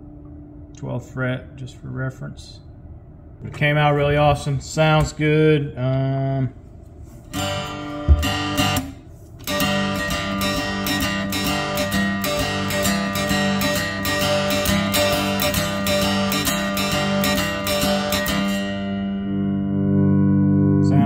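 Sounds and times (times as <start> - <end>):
guitar strummed rhythmically: 7.4 - 21.0.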